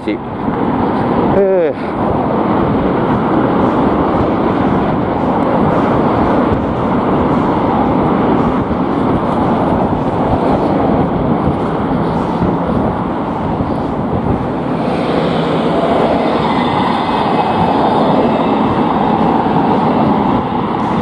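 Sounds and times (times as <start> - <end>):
road traffic: 0.0 - 21.0
wind buffeting microphone: 0.0 - 21.0.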